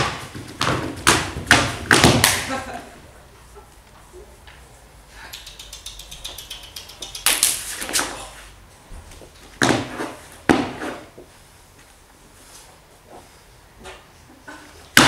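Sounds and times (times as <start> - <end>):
rapid light ticks: 5.3 - 7.6
sharp percussive hits: 5.3 - 7.7.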